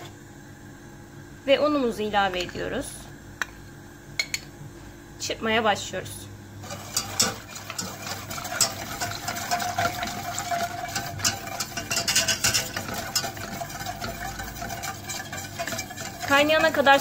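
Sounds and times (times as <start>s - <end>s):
whisk clicking and scraping in pot: 6.6s - 17.0s.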